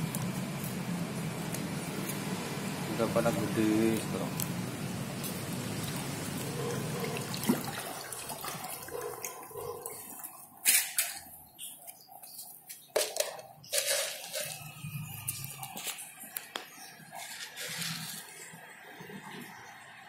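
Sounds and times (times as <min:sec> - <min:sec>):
water splashing and rippling: 0:05.1 - 0:20.0
sharp splashes: 0:06.7 - 0:09.4.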